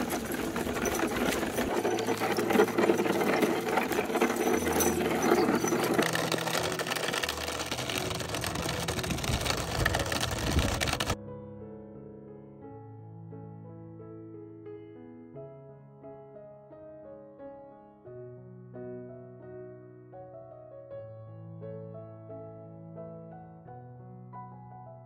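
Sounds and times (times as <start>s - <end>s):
rapid mechanical clatter: 0.0s - 11.2s
piano music: 0.0s - 25.0s.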